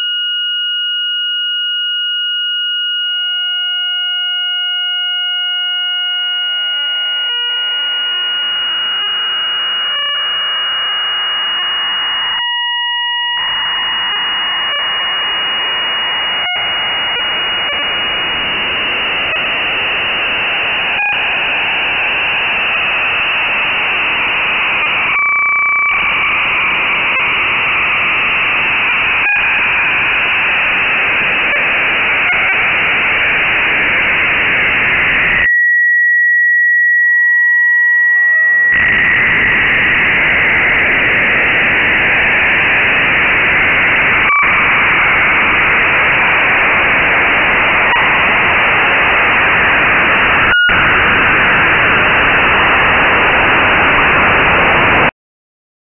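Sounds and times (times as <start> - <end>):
clean steady tones: 3.3 - 35.5
steady high tone: 5.2 - 53.2
loud hiss-like noise: 11.2 - 35.4, 38.3 - 55.1.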